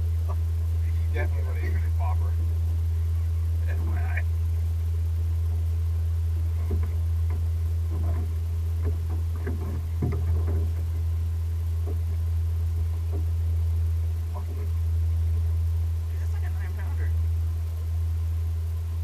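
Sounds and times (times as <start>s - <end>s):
steady low hum: 0.0s - 19.0s
faint knocks: 6.6s - 11.0s.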